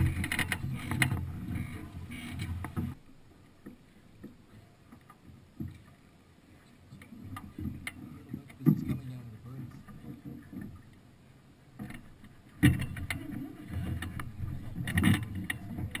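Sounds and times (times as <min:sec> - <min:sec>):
wind rumbling: 0:00.0 - 0:03.1.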